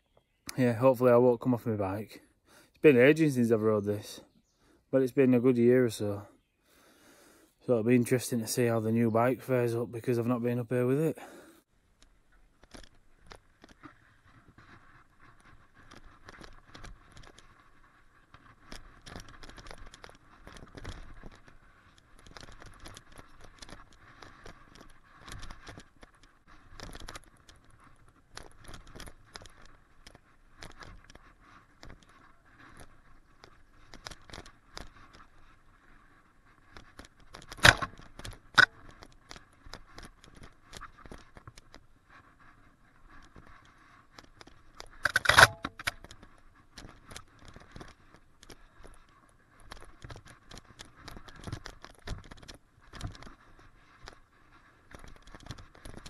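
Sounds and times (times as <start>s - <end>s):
bike rattling over stones: 12.0s - 56.0s.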